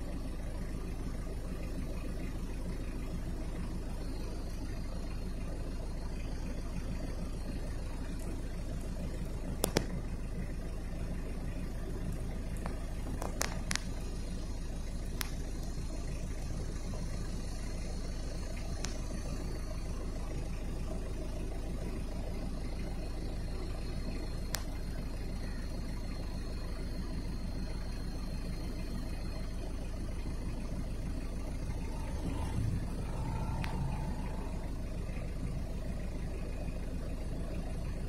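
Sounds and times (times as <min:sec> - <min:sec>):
faint clicks: 0:09.5 - 0:10.1, 0:11.9 - 0:14.2, 0:15.0 - 0:15.9, 0:18.5 - 0:19.4, 0:24.5 - 0:25.0, 0:31.7 - 0:34.9.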